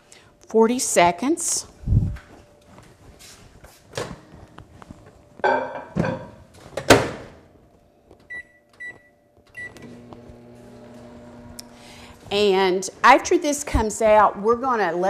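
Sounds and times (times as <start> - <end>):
keypad beeps: 8.3 - 9.8
microwave oven humming: 8.3 - 12.7.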